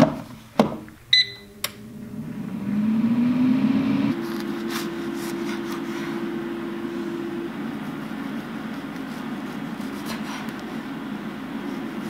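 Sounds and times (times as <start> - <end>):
air fryer fan whirring: 0.0 - 12.0
short beep: 1.1 - 1.6.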